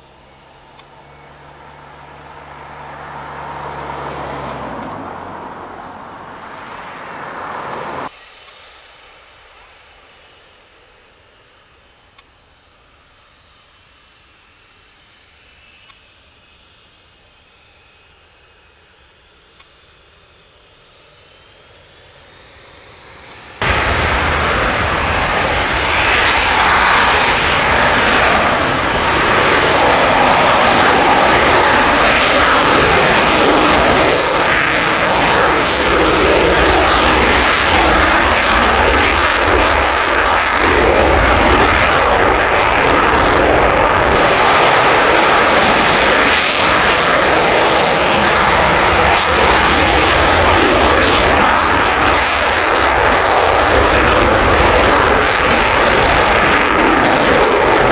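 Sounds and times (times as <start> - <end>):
loud jet engine noise: 0.0 - 57.9.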